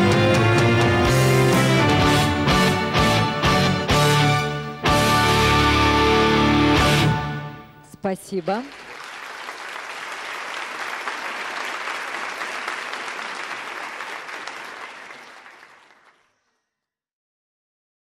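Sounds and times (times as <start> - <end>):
audience applauding: 8.4 - 16.5.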